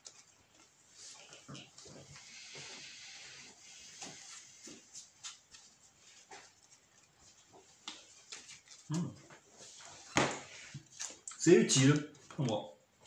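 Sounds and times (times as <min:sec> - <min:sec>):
cards sliding hiss: 0:02.2 - 0:05.4.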